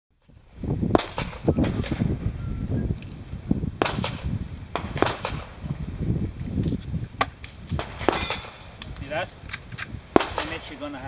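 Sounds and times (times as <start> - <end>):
gunshots: 0.9 - 2.1, 3.8 - 5.6, 7.8 - 8.7, 10.1 - 11.0.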